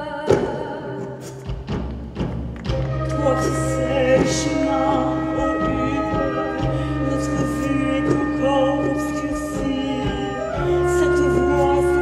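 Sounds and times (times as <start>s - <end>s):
low bass: 1.5s - 12.0s
wavering melody: 2.7s - 12.0s
person singing: 3.0s - 12.0s.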